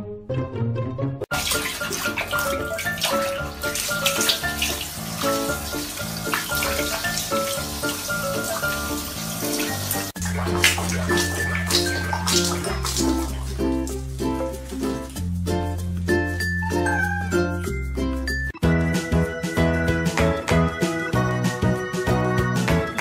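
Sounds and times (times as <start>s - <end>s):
background music: 0.0s - 23.0s
tap water splashing in sink: 1.3s - 15.2s.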